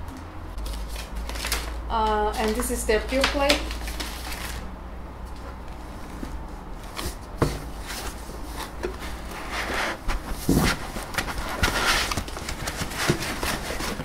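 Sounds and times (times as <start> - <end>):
low steady hum: 0.0 - 14.0
rustling in cardboard box: 5.4 - 14.0.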